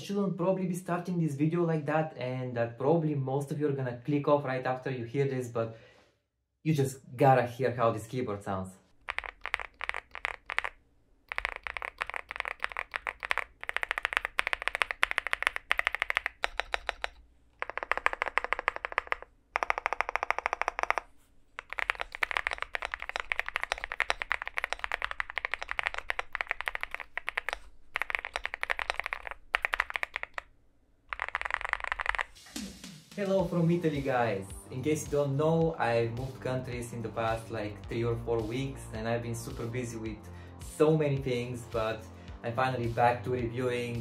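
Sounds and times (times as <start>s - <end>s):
fast typing on mechanical keyboard: 9.0s - 30.5s, 31.1s - 32.4s.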